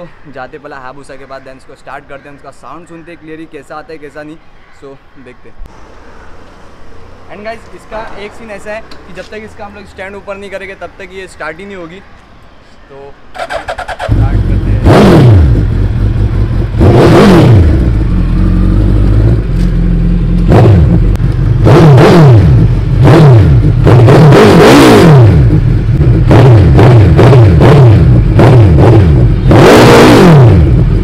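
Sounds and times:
motorcycle engine revving: 13.4 - 31.0.

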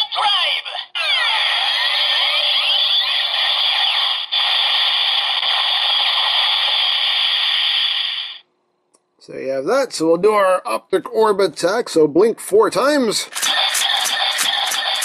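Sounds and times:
toy belt electronic hissing effect: 1.4 - 8.4, 13.3 - 15.0.

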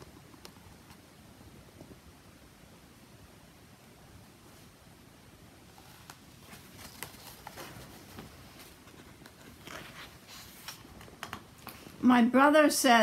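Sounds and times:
book being handled: 5.7 - 12.0
pages turning: 5.7 - 12.0.

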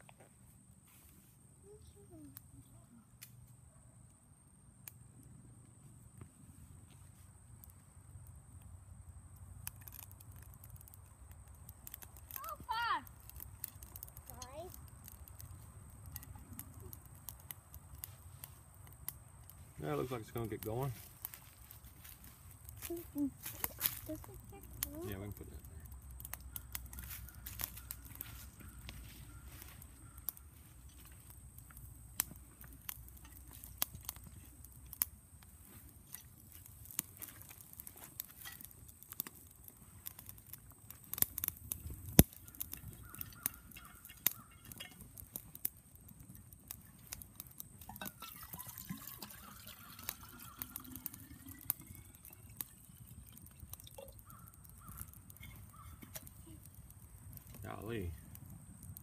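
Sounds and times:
twigs crackling and popping in fire: 0.0 - 59.0.

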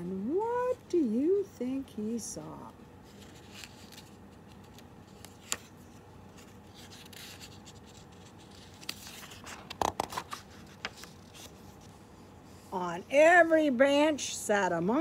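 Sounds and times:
book page turning: 3.0 - 12.1.

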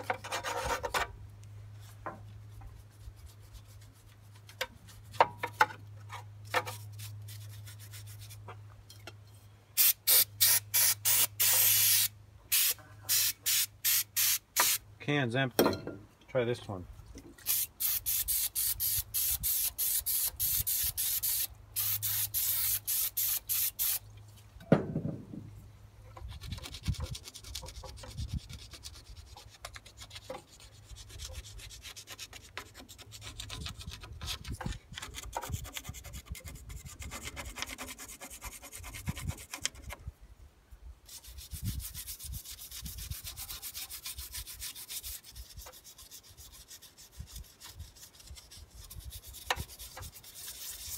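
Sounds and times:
brush scrubbing metal: 26.2 - 34.4, 35.1 - 40.0, 41.1 - 50.9.

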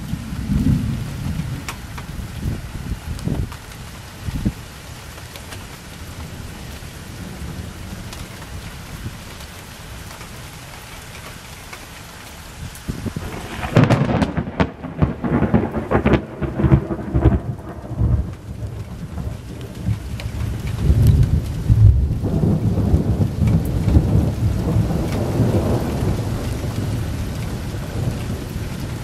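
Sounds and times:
thunderclap with rumbling cracks: 0.0 - 4.6, 12.7 - 29.0
rain hiss: 0.0 - 29.0.

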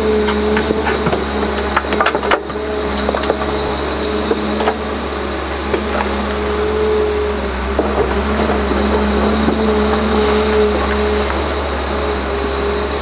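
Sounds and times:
bucket scraping through stony soil: 0.0 - 12.8
excavator engine and hydraulics hum: 0.0 - 13.0
stones knocking and cracking: 0.3 - 3.6.

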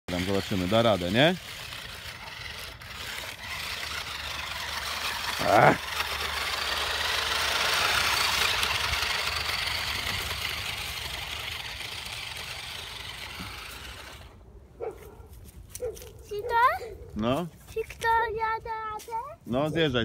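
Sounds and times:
toy truck motor whirring: 0.1 - 14.4.

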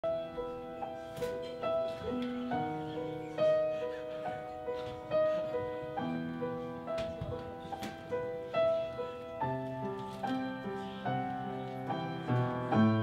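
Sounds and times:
grand piano ballad: 0.0 - 13.0.

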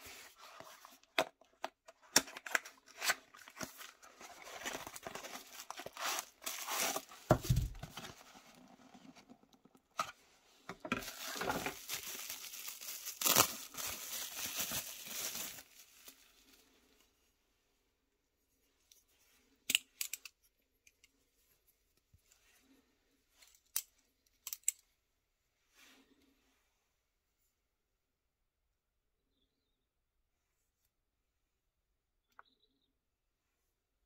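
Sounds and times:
packaging crinkling and tearing: 0.6 - 8.6, 10.9 - 16.7.

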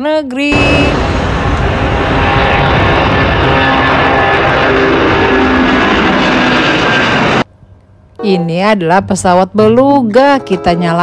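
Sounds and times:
jet engine roar: 0.5 - 7.5.

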